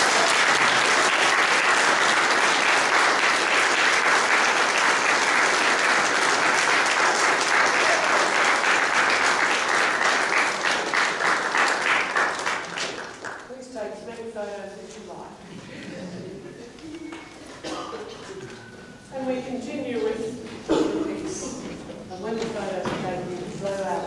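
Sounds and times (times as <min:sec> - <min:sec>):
congregation applauding: 0:00.0 - 0:13.6.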